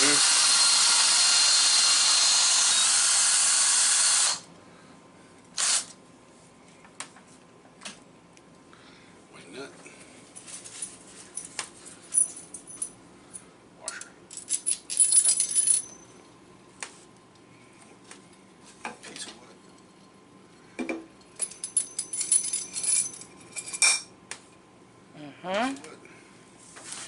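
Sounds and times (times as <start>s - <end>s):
light metal clinks and rattles: 10.3s - 16.3s, 21.2s - 24.1s.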